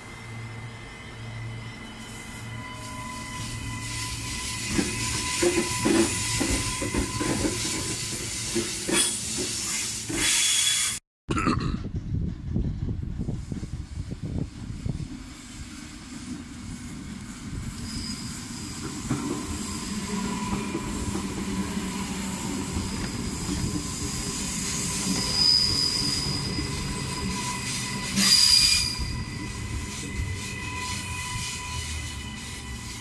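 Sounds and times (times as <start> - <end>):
electric train rumbling: 0.0 - 11.0, 11.8 - 33.0
wheel and brake squeal: 0.2 - 11.0, 17.6 - 33.0
loud hiss: 8.4 - 11.0.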